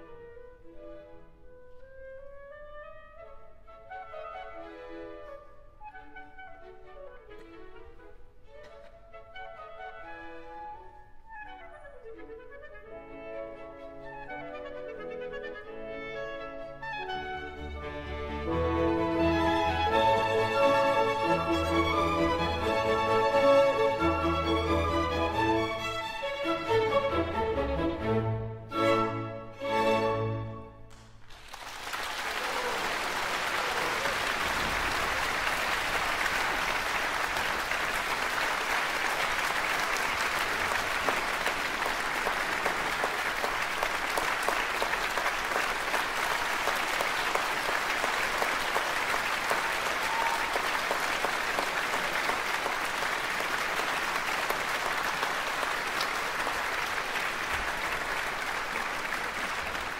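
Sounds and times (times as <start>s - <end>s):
audience applauding: 18.4s - 26.4s, 30.9s - 59.9s.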